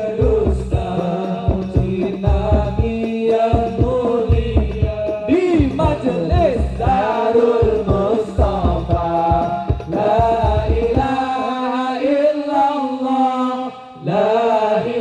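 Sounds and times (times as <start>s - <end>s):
low beats: 0.0s - 11.4s
man singing into a microphone: 0.0s - 15.0s
men chanting along: 0.0s - 15.0s.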